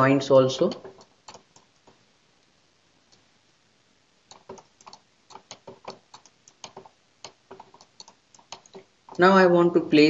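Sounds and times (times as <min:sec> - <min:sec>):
computer mouse and keyboard clicks: 0:00.6 - 0:02.5, 0:04.3 - 0:09.3.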